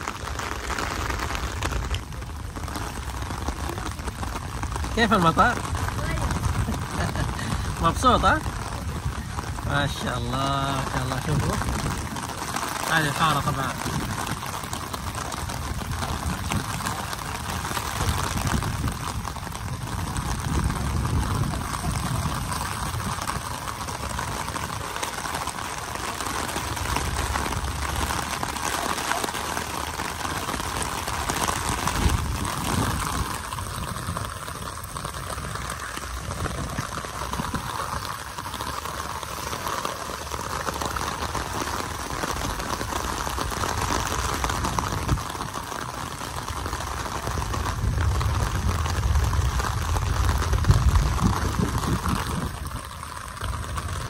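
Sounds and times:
rain pattering on an umbrella: 0:00.0 - 0:54.0.

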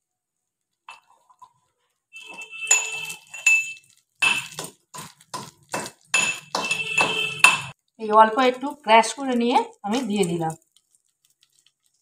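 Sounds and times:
spices clinking and knocking: 0:02.2 - 0:07.8.

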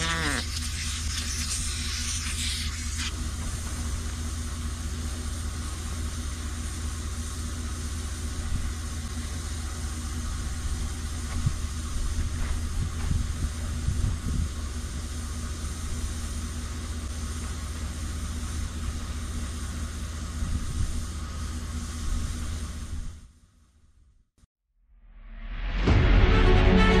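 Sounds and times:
air hissing from tyre valve: 0:00.0 - 0:23.4
truck engine idling: 0:03.1 - 0:23.0.

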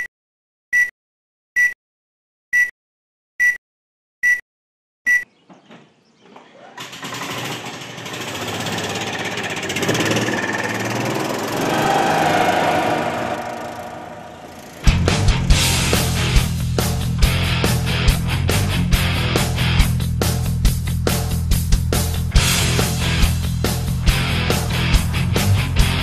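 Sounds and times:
golf cart engine running: 0:06.8 - 0:16.5.

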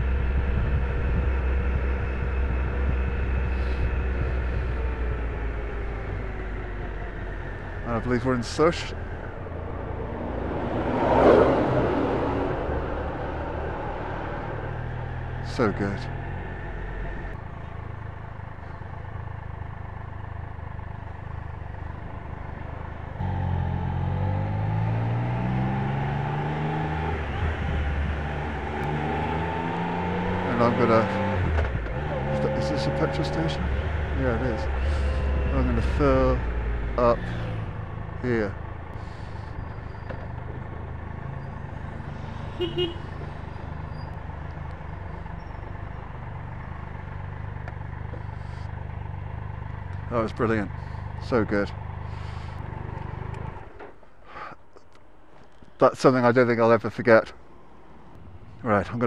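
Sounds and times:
motorcycle engine running: 0:00.0 - 0:54.0
road and wind noise: 0:00.0 - 0:59.0
horn toots: 0:42.2 - 0:43.4.

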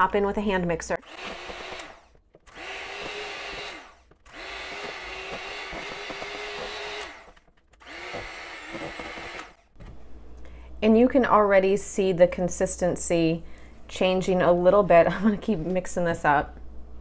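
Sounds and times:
electric hand mixer running: 0:01.0 - 0:09.7.

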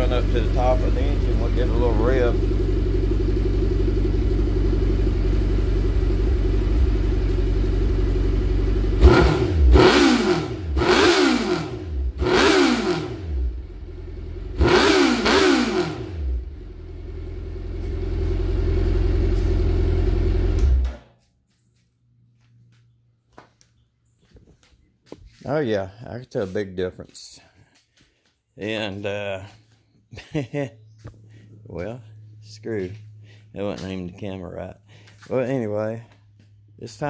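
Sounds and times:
motorcycle engine idling and revving: 0:00.0 - 0:21.1, 0:28.6 - 0:37.0.

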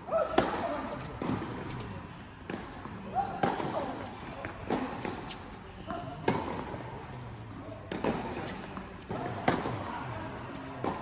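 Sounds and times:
racket striking tennis ball: 0:00.2 - 0:01.8, 0:03.3 - 0:05.4, 0:06.2 - 0:06.8, 0:07.9 - 0:09.8, 0:10.8 - 0:11.0.

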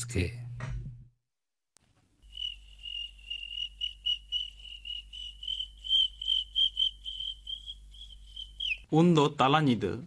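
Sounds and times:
crickets chirping: 0:02.2 - 0:08.9.

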